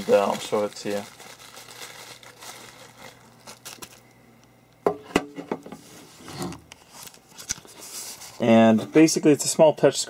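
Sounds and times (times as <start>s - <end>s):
bubble wrap rustling: 0.0s - 4.1s.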